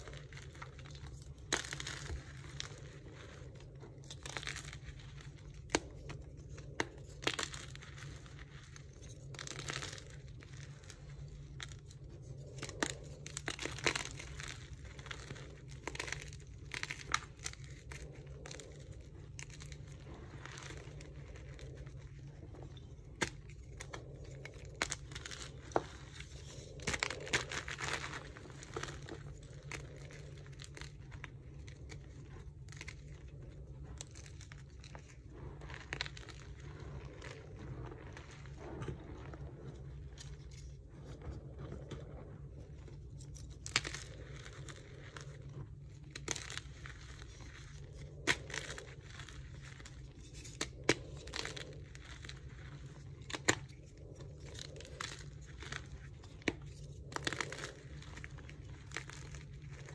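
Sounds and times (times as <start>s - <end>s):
chalk crumbling between fingers: 0.0s - 59.9s.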